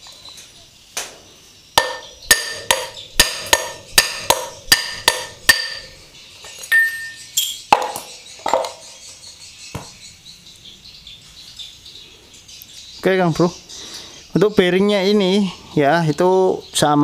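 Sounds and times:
hammer knocking on metal shaft: 1.8 - 5.9.

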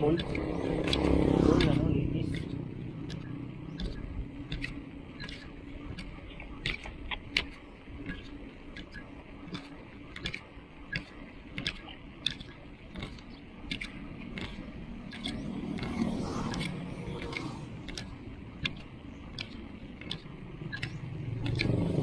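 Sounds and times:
bicycle clicking: 0.0 - 22.0
low rumbling ride noise: 0.0 - 22.0.

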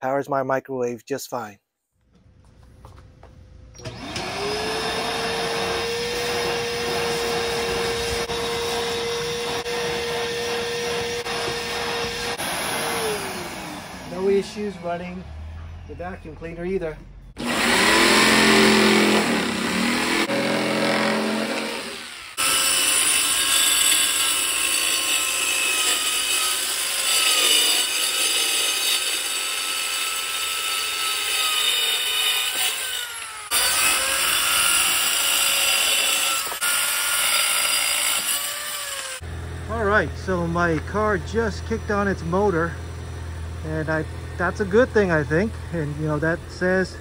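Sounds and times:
jigsaw cutting plywood: 3.8 - 14.1, 17.4 - 39.2
circular saw cutting wood: 3.8 - 15.0, 17.4 - 42.8.

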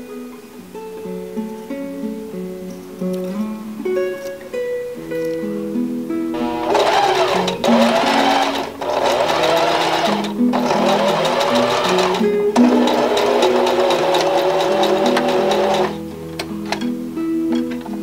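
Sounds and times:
sewing machine stitching: 6.4 - 16.0.

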